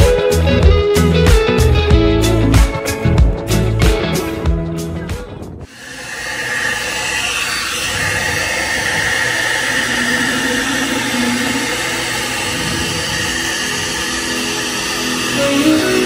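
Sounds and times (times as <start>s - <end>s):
hair-dryer brush blowing air: 5.7s - 16.0s.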